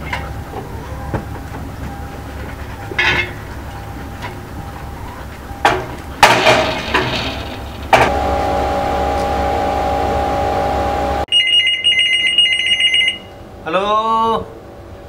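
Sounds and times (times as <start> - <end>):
metal barrier clanking: 0.0 - 11.2.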